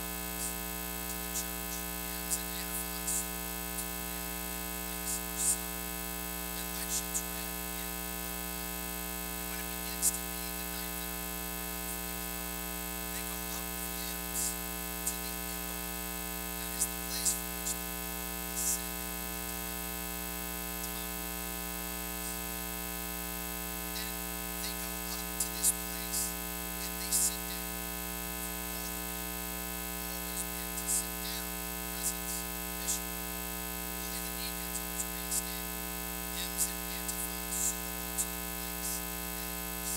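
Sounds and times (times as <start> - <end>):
electrical mains hum: 0.0 - 39.9.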